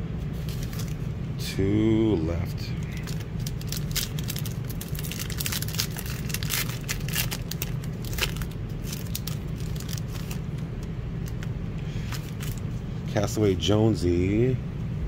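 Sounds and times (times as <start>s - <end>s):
steady low hum: 0.0s - 15.0s
foil wrapper crinkling: 0.4s - 1.1s, 2.8s - 12.7s.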